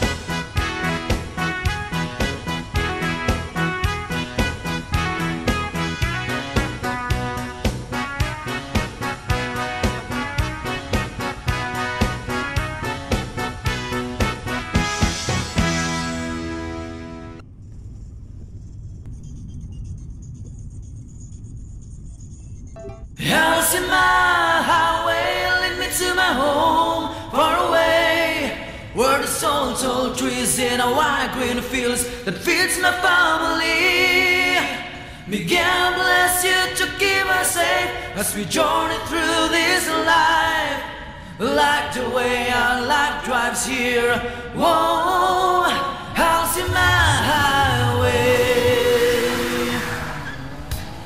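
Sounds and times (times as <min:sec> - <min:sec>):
voices singing a cappella: 0:23.2 - 0:50.9
singers breathing: 0:34.9 - 0:35.3, 0:40.9 - 0:41.4.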